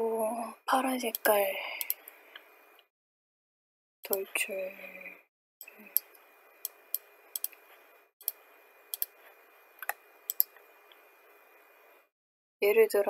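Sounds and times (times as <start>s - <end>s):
computer mouse clicking: 1.0s - 2.5s, 5.6s - 7.6s, 8.2s - 9.2s, 9.8s - 11.0s.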